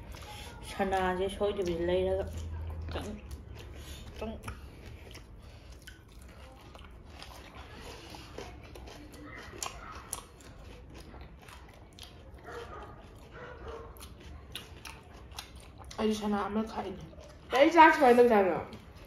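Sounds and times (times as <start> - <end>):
chewing and crunching food: 0.0 - 19.0.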